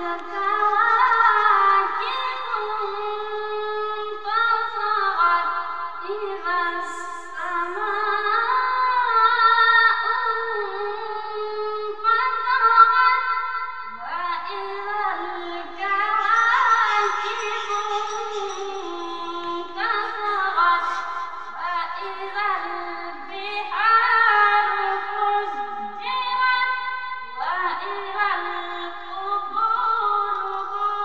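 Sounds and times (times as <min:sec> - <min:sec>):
person chanting recitation: 0:00.0 - 0:13.2, 0:13.9 - 0:26.8.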